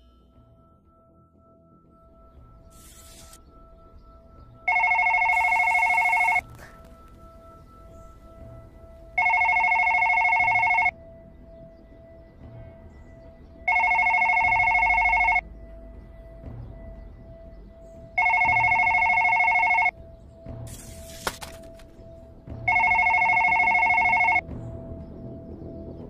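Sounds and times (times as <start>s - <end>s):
faint steady tone: 0.0s - 20.0s
telephone ringing: 4.6s - 7.2s, 9.2s - 11.0s, 13.7s - 15.4s, 18.2s - 19.9s, 22.7s - 24.4s.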